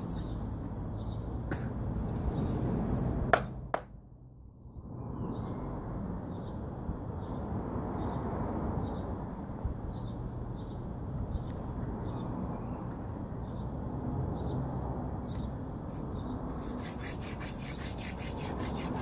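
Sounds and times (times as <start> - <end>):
steady outdoor hiss: 0.0 - 4.4, 14.9 - 19.0
palms rubbing together: 15.9 - 19.0.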